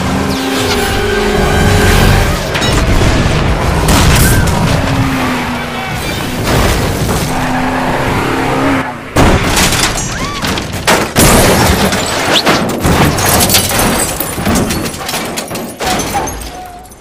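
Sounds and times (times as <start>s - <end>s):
heavy metal smashing impacts: 9.2s - 17.0s
truck tumbling into wrecked cars: 9.2s - 17.0s.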